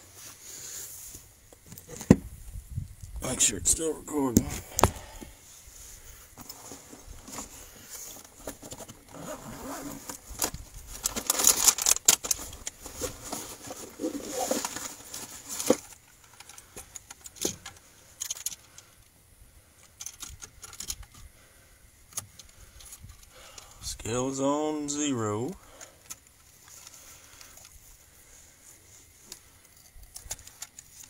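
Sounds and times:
clothing and gear rustling: 4.6 - 16.1.

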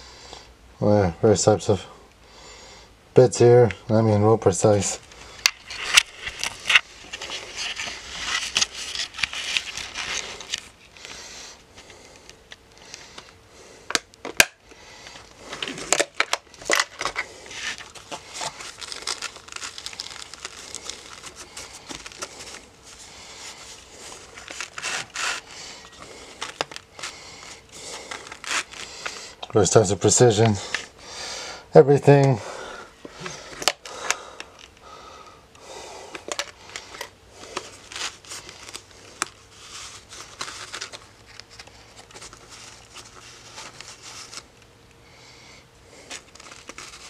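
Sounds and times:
cloth rustling and crinkling: 5.0 - 12.5, 15.1 - 31.0, 36.3 - 44.6, 45.9 - 47.0.

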